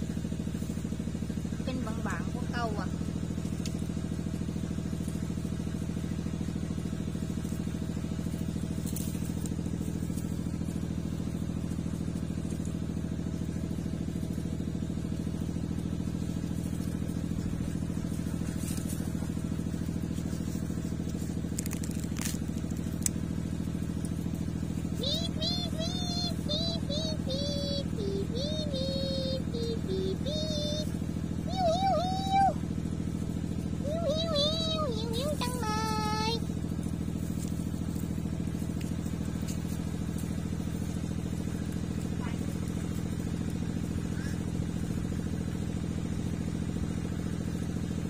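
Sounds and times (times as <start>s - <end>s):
motor humming: 0.0s - 48.0s
light clicks and rattles: 18.1s - 23.3s.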